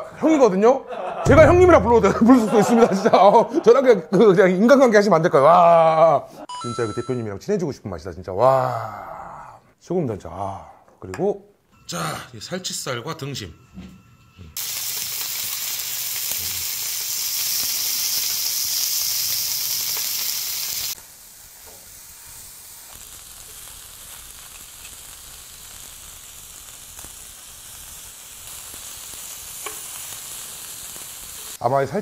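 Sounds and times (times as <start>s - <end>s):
meat sizzling on a griddle: 14.6s - 31.6s
tongs clicking against pan: 29.6s - 29.9s.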